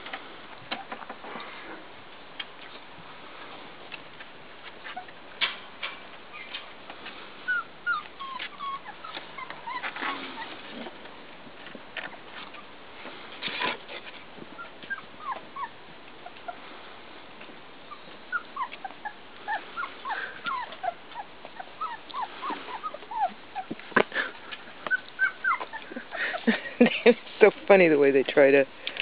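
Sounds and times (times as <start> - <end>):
puppies whimpering and squeaking: 4.8 - 5.2, 5.9 - 11.3, 12.3 - 12.8, 13.4 - 17.0, 17.8 - 26.6.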